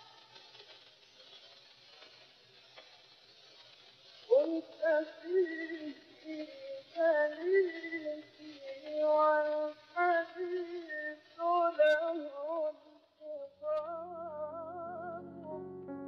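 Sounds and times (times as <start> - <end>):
person singing on old record: 0.0 - 0.6, 4.2 - 16.0
instrumental music: 13.3 - 16.0.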